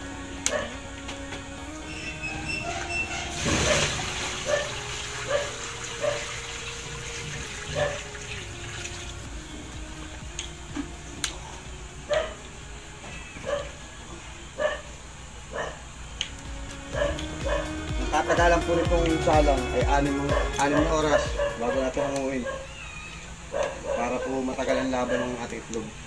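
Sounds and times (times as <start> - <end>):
soft background music: 0.0 - 26.0
dog barking: 0.4 - 0.8, 3.5 - 6.3, 7.7 - 8.1, 12.1 - 12.4, 13.4 - 13.8, 14.6 - 15.9, 16.9 - 17.7, 20.3 - 22.8, 23.5 - 25.5
water hissing in hot wok: 3.3 - 9.2.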